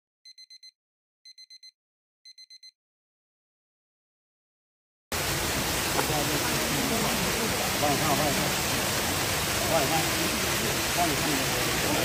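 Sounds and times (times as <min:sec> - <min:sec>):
short electronic beeps: 0:00.3 - 0:02.8
loud rushing water: 0:05.1 - 0:12.0.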